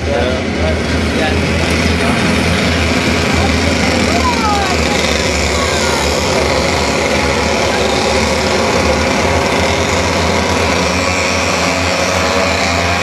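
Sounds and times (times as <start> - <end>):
racing kart engines buzzing: 0.0 - 13.0.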